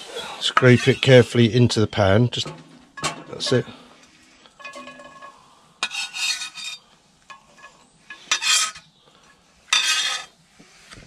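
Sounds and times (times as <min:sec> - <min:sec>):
knife scraping wooden board: 0:05.8 - 0:06.8, 0:08.3 - 0:08.8, 0:09.7 - 0:10.3.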